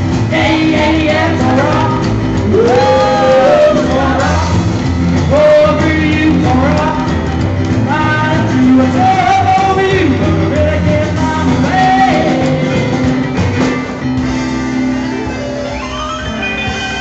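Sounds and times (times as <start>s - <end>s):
drums: 0.0s - 17.0s
keyboard piano: 0.0s - 17.0s
man singing: 0.3s - 13.1s.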